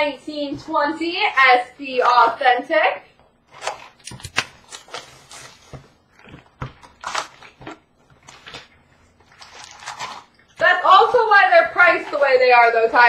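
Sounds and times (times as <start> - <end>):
card pack wrappers crinkling: 3.5 - 10.6.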